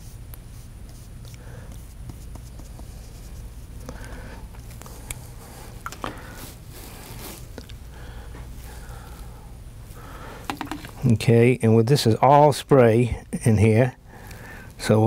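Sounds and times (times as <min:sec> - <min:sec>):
brush scratching on paper: 0:00.0 - 0:03.8
steady low hum: 0:00.0 - 0:15.0.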